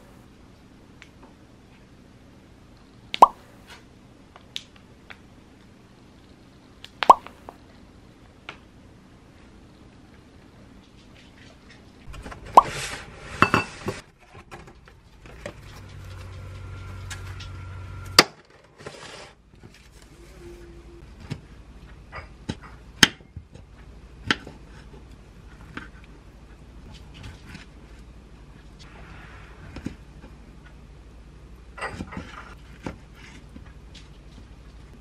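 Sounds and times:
low hum: 12.0s - 18.2s.

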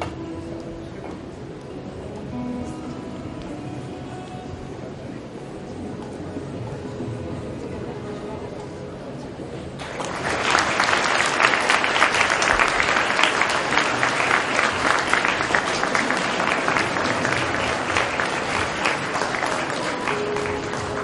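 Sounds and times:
crowd applauding: 9.8s - 21.0s.

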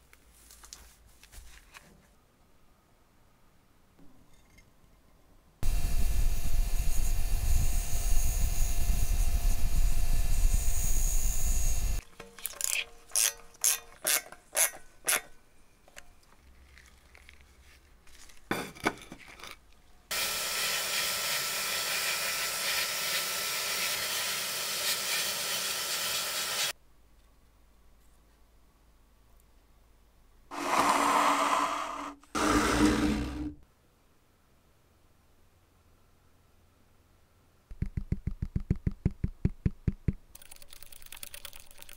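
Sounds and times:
higher-pitched power tool running: 20.1s - 26.7s
power tool running: 20.1s - 26.7s, 30.5s - 33.5s.

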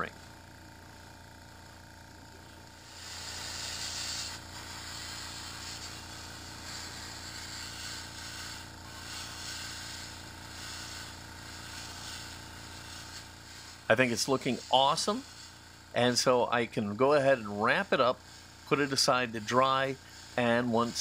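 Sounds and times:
steady motor hum: 0.0s - 21.0s
airbrush hissing: 2.4s - 21.0s.

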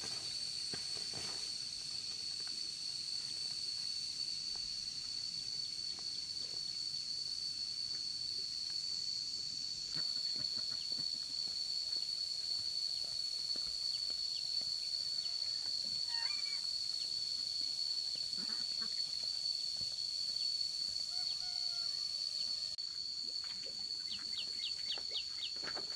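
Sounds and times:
high-pitched insect drone: 0.0s - 25.9s.

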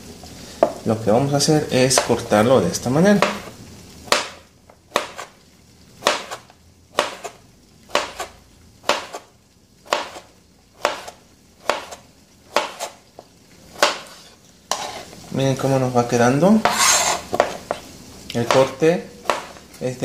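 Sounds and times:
knife knocking on cutting board: 16.6s - 17.8s.

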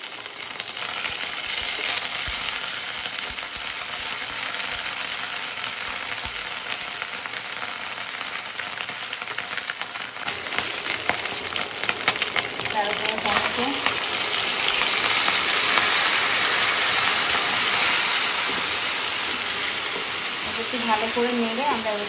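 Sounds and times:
paste sizzling in oil: 0.0s - 22.0s
wooden spatula stirring in pan: 16.6s - 22.0s.

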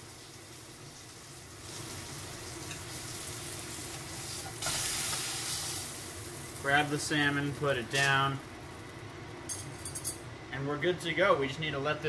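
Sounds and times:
fish sizzling in a frying pan: 0.0s - 9.1s.

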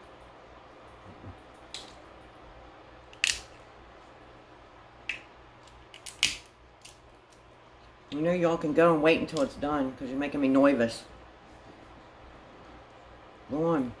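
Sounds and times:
crab shell cracking: 3.1s - 3.6s, 5.1s - 7.5s.

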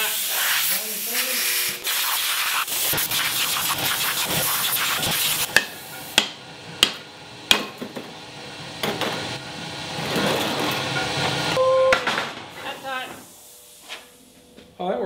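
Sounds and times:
arc welding crackling sizzle: 0.0s - 6.2s, 12.5s - 14.4s.

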